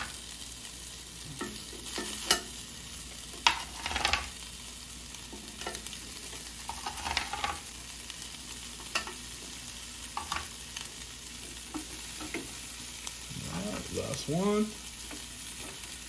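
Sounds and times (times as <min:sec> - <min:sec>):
food sizzling on a grill: 0:00.0 - 0:16.0
tongs clicking on grill grate: 0:01.4 - 0:02.6, 0:05.3 - 0:07.6, 0:08.8 - 0:09.2.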